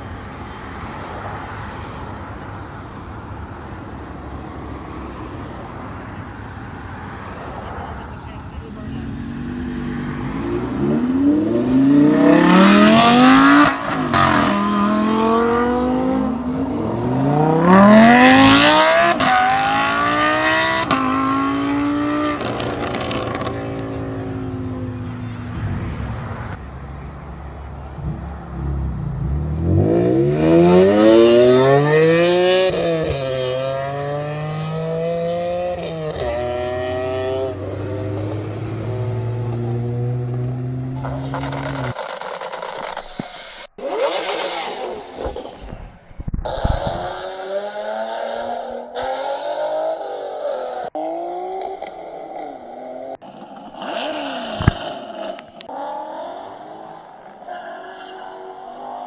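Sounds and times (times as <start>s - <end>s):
car accelerating hard: 8.8s - 26.6s, 28.0s - 43.2s.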